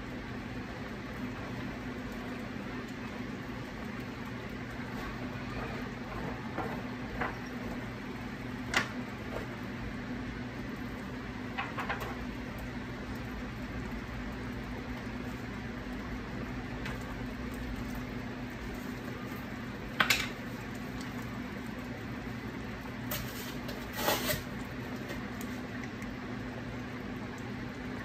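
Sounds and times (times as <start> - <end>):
chicken simmering in a pan: 0.0 - 28.0.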